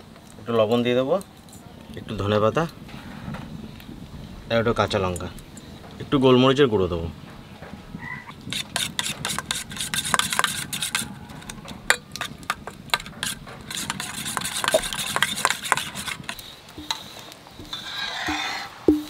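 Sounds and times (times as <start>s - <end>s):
spoon beating eggs in bowl: 8.4s - 19.0s.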